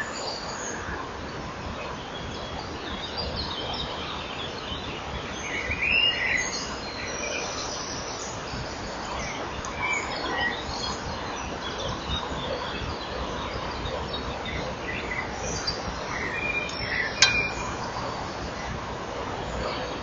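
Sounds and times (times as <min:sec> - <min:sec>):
high bird chirps: 0:16.6 - 0:17.9
sharp click: 0:17.2 - 0:17.8.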